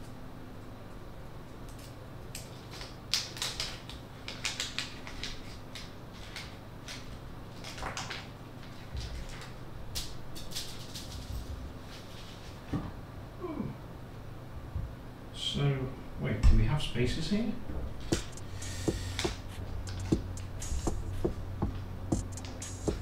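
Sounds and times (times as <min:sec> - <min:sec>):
plastic bag crinkling: 0:02.6 - 0:09.6.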